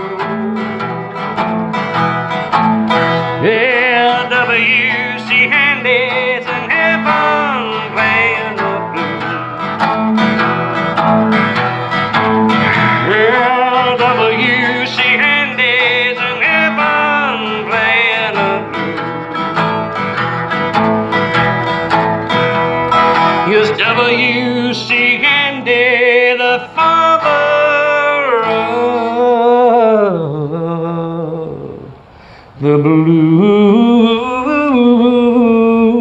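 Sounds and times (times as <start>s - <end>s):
sustained backing music: 0.0s - 25.4s
resonator guitar lead: 0.0s - 32.1s.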